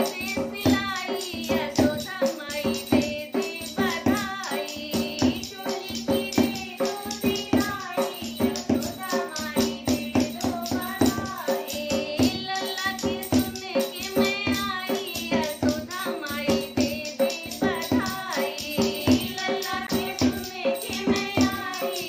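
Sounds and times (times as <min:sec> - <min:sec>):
hand drum beat: 0:00.0 - 0:22.0
women singing folk song: 0:00.0 - 0:22.0.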